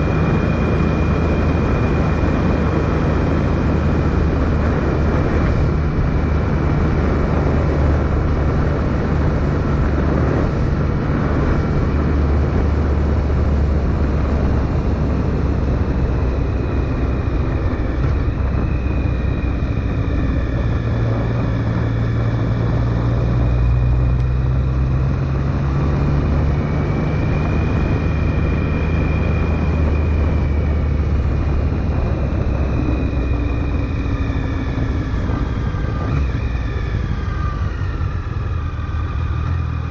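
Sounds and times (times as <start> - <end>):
motorcycle engine cruising: 0.0 - 39.9
wind and road noise: 0.0 - 39.9.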